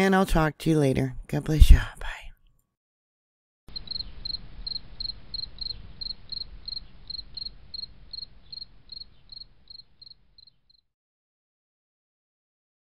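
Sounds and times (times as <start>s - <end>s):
cricket chirping: 3.7s - 10.8s.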